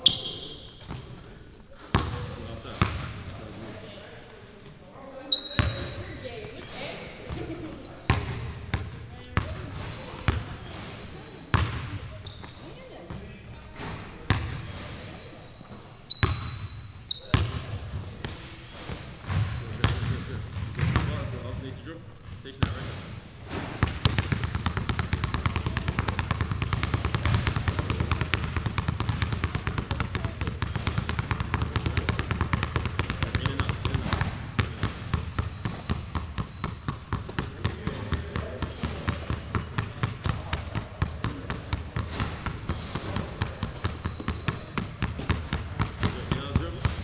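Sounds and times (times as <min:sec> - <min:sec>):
basketball bouncing on wooden floor: 0:01.9 - 0:03.1, 0:11.5 - 0:14.6, 0:19.2 - 0:21.2, 0:22.2 - 0:47.0.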